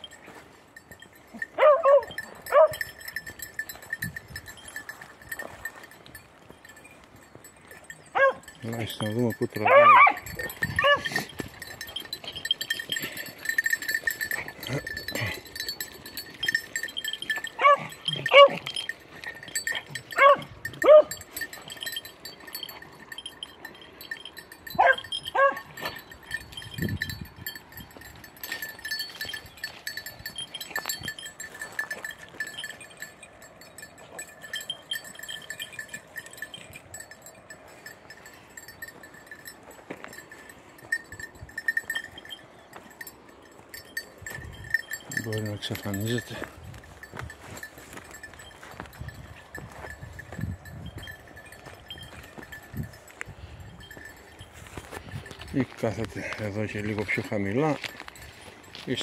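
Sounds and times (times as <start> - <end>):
dogs yelping: 1.4 - 2.8, 8.0 - 8.5, 9.6 - 11.4, 17.4 - 21.3, 24.8 - 26.0.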